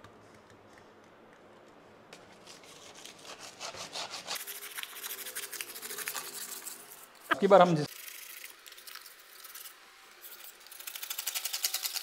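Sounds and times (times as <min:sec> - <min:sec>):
razor scraper scraping stone: 0:02.4 - 0:07.0.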